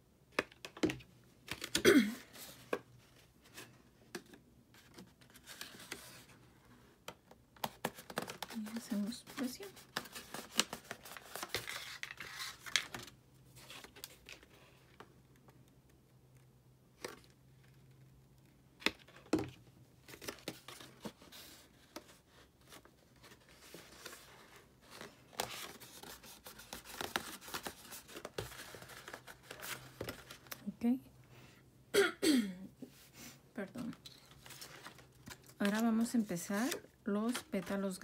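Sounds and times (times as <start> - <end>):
paper petals rustling and crinkling: 7.8 - 14.6.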